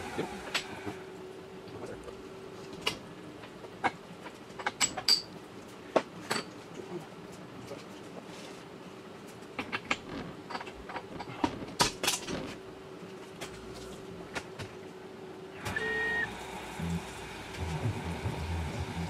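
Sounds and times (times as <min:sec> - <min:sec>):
machine hum: 0:00.0 - 0:02.7, 0:13.6 - 0:19.0
spindle whine: 0:15.4 - 0:19.0.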